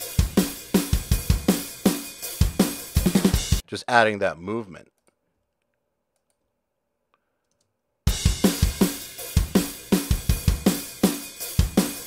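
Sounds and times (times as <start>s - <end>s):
pop-punk drum beat: 0.0s - 3.6s, 8.1s - 12.0s.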